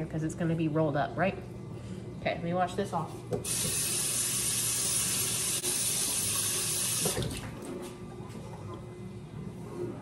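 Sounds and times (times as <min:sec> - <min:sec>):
tap water running and splashing: 0:03.4 - 0:08.0.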